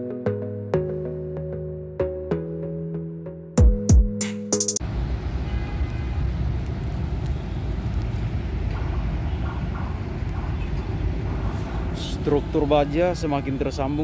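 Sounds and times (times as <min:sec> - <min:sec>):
road traffic rumble: 0:04.8 - 0:14.0.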